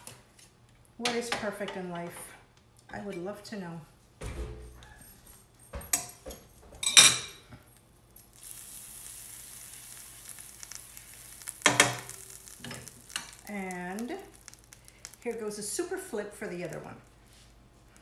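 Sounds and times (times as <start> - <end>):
butter sizzling in a frying pan: 6.9 - 16.8.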